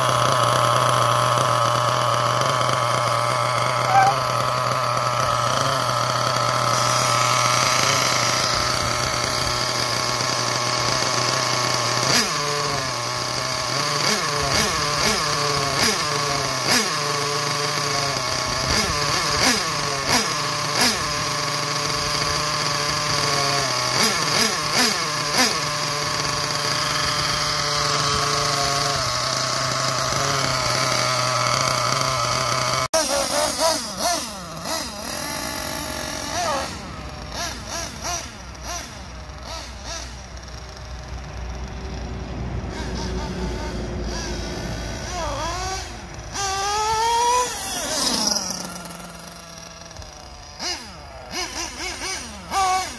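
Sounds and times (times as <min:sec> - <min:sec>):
small nitro engine revving: 0:00.0 - 0:52.9.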